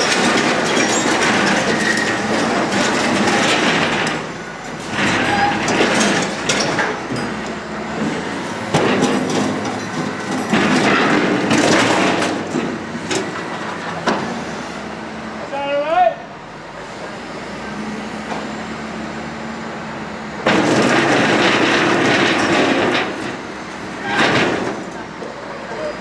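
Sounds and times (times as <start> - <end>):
metal debris scraping and clanking: 0.0 - 14.3, 20.4 - 25.0
loader engine running: 0.0 - 26.0.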